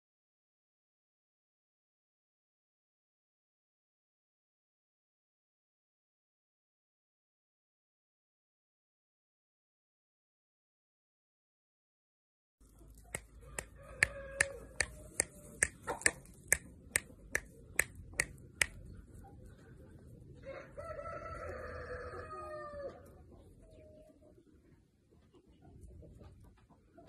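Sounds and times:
sharp clicks: 13.1s - 18.8s
rooster crowing: 13.4s - 15.2s, 20.4s - 23.1s.

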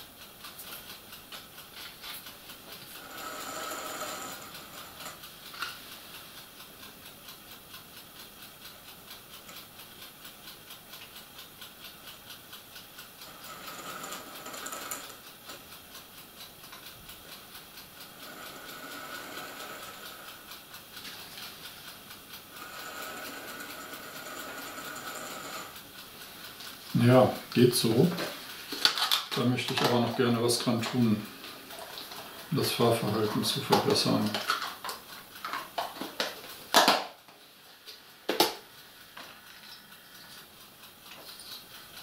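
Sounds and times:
steady ticking: 0.0s - 42.0s
small electric motor whine: 22.6s - 25.8s.

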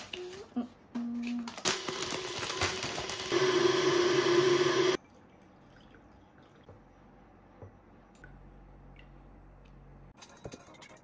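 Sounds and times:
water pouring into a glass: 5.0s - 6.6s.

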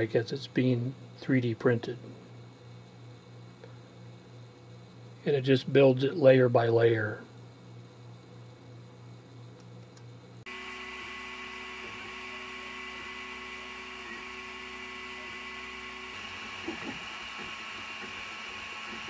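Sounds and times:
printer motor and fan whine: 0.0s - 19.0s
motor whirs rising and falling: 10.5s - 19.0s.

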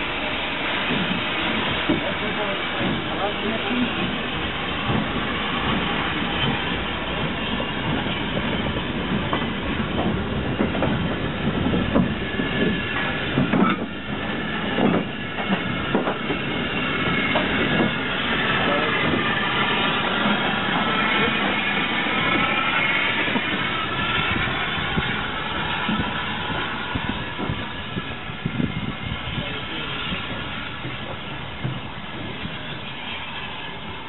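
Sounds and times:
steam hissing: 0.0s - 34.0s
wheels and couplings clanking: 11.8s - 21.6s.

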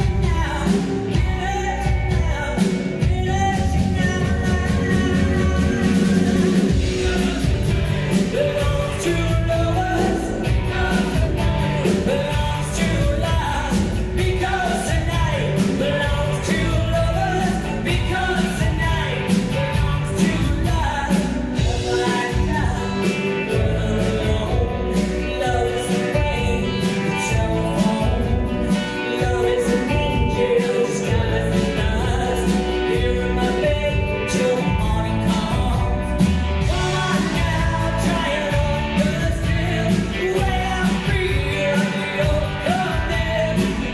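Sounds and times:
bass guitar: 0.0s - 43.9s
drums: 0.0s - 43.9s
electric and acoustic guitars: 0.0s - 43.9s
person singing: 0.0s - 43.9s.

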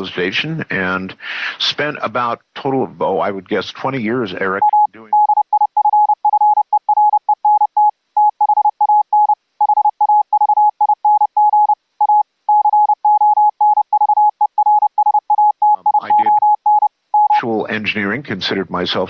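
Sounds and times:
morse code tone: 4.6s - 17.4s.

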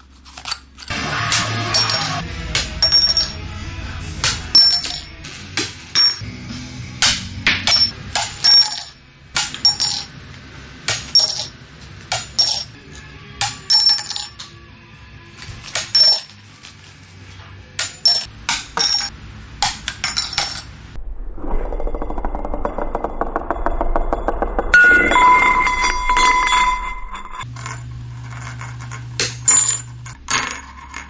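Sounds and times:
background music: 0.9s - 19.1s
coins clinking against glasses: 1.7s - 2.2s, 2.8s - 3.4s, 4.5s - 5.1s, 5.9s - 6.2s, 7.7s - 10.1s, 11.1s - 11.5s, 12.2s - 12.8s, 13.7s - 14.4s, 15.8s - 16.4s, 17.8s - 19.1s, 25.8s - 31.0s
dense unidentified sound: 20.8s - 27.4s.

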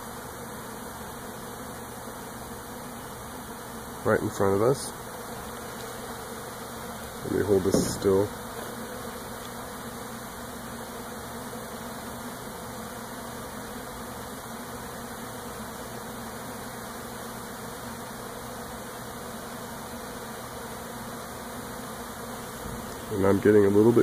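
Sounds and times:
honey bees buzzing: 0.0s - 24.0s.

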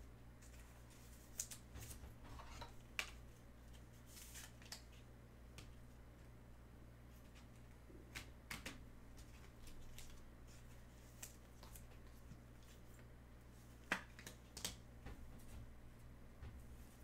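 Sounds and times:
low steady hum: 0.0s - 17.0s
soft clicks and rustles of cards: 0.4s - 6.3s, 7.1s - 15.7s.

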